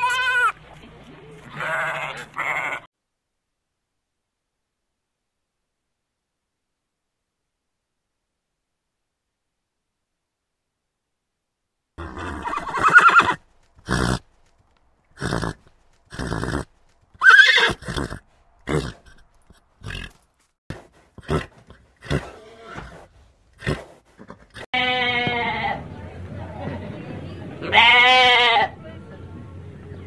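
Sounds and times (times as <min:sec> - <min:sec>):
lamb bleating: 0:00.0 - 0:00.6, 0:01.5 - 0:02.9, 0:24.8 - 0:25.8, 0:27.7 - 0:28.7
horses whinnying: 0:12.0 - 0:14.2, 0:15.2 - 0:20.2.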